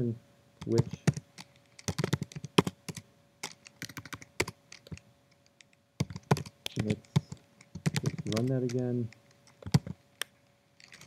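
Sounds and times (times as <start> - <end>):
keyboard key clicks: 6.0 - 11.0.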